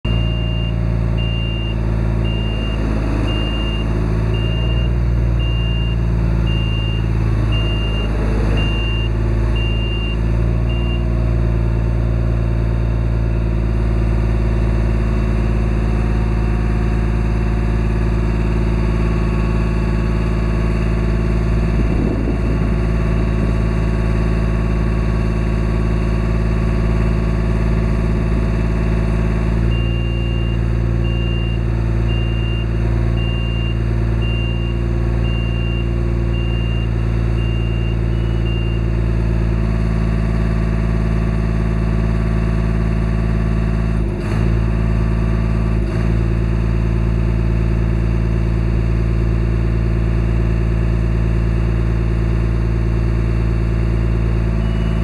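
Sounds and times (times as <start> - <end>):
boom lift power unit running: 0.1 - 11.0, 14.8 - 39.0.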